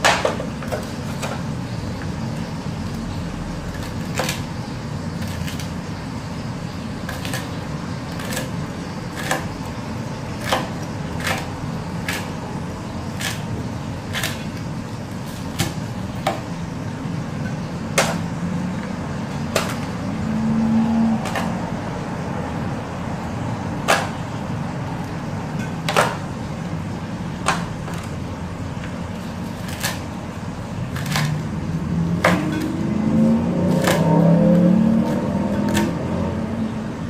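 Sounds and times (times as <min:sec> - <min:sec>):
steady low hum: 0:00.0 - 0:37.0
knife chopping on cutting board: 0:09.2 - 0:09.6, 0:10.4 - 0:12.4, 0:33.7 - 0:34.1, 0:35.0 - 0:36.0.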